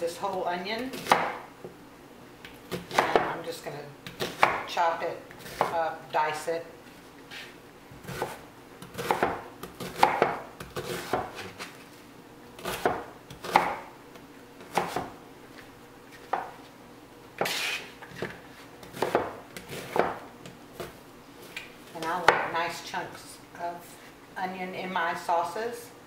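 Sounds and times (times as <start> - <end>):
knife chopping on cutting board: 1.0 - 1.4, 2.7 - 3.4, 4.1 - 4.7, 5.4 - 5.8, 7.3 - 11.7, 12.6 - 13.9, 14.6 - 15.2, 17.4 - 21.0, 22.2 - 22.5.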